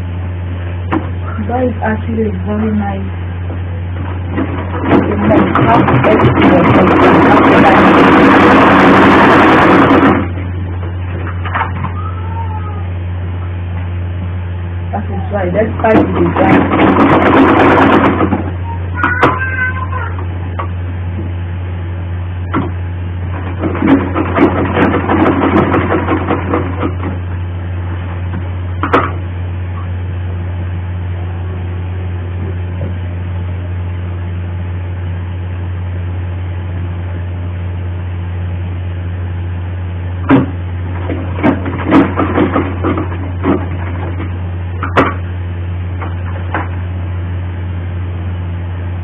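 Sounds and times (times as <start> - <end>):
steady low hum: 0.0 - 49.0
sewing machine stitching: 4.9 - 10.3, 16.1 - 18.4.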